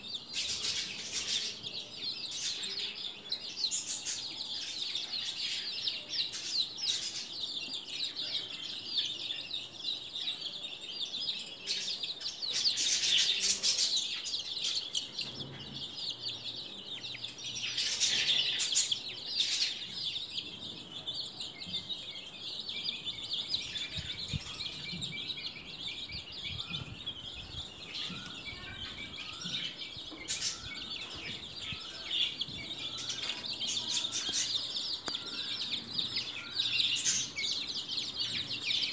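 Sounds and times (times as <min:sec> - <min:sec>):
chicks peeping: 0:00.0 - 0:38.9.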